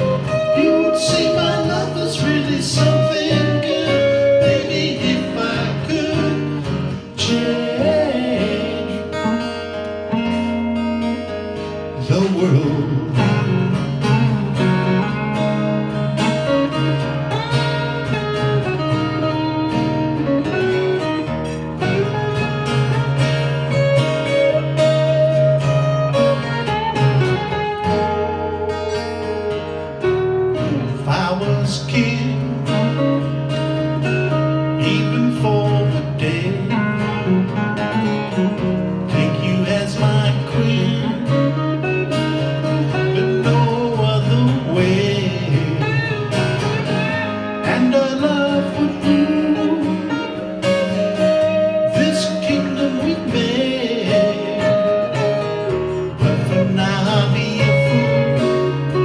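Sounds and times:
man singing: 0.0s - 9.6s, 12.0s - 13.5s, 30.6s - 33.3s, 34.4s - 37.3s, 39.1s - 41.9s, 42.6s - 50.5s, 51.3s - 55.4s, 56.2s - 59.0s
acoustic guitars playing rock: 0.0s - 59.0s.

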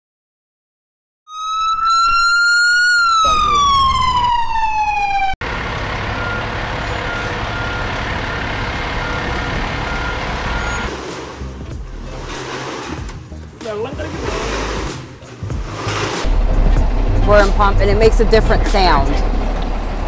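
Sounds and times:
emergency siren wailing: 1.3s - 10.9s
fire engine idling: 5.4s - 13.6s
back-up alarm beeps: 6.2s - 10.9s.

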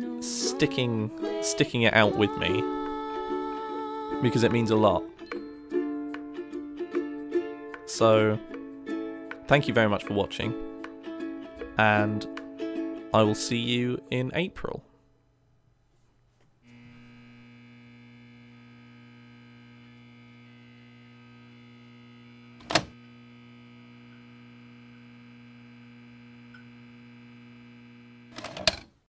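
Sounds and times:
layered electrical hum: 16.6s - 28.8s.

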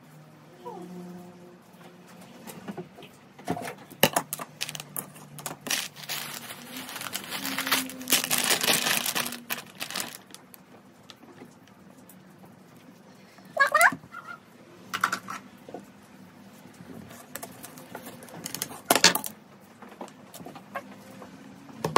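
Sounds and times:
plastic snack bag crinkling: 4.0s - 10.8s, 17.2s - 19.3s.

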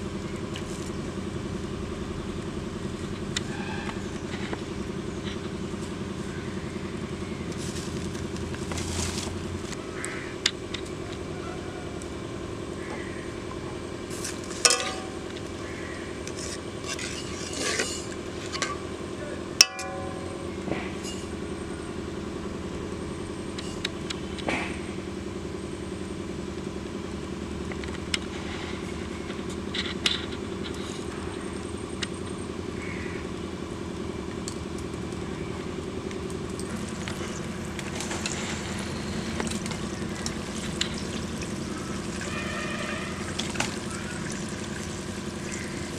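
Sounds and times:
steady low hum: 0.0s - 45.9s
sharp ringing knock: 19.6s - 21.1s.

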